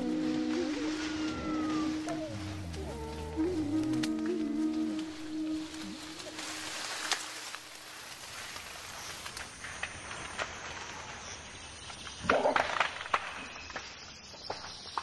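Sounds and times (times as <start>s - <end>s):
animal calling: 0.0s - 6.9s
outdoor background hiss: 0.0s - 12.2s.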